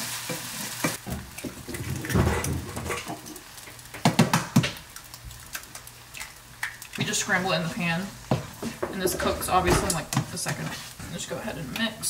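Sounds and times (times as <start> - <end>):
frying sizzle: 0.0 - 12.0
spatula scraping rice in skillet: 9.9 - 11.1.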